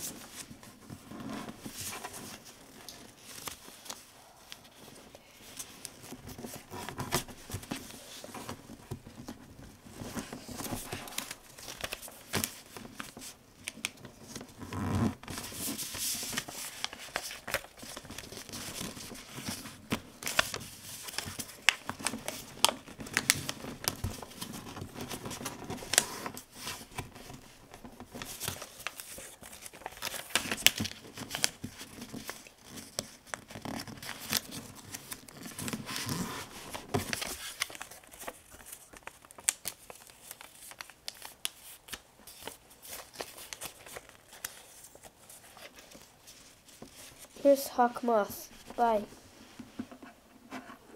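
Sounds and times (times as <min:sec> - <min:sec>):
sharp clicks of paper folds: 0:00.0 - 0:47.6
paper rustling and crinkling: 0:00.0 - 0:50.9.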